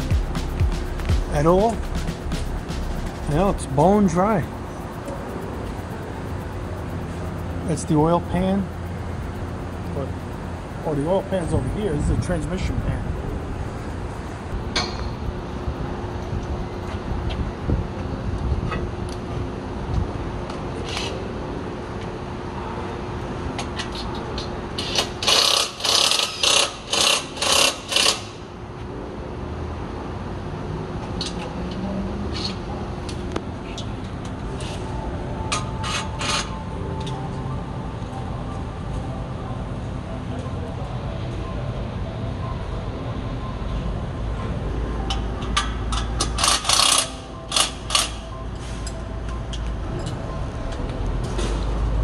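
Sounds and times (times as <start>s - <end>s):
steady low hum: 0.0s - 23.6s
ratchet clicking: 24.8s - 28.4s, 45.1s - 48.3s
pneumatic wrench bursts: 24.9s - 28.4s.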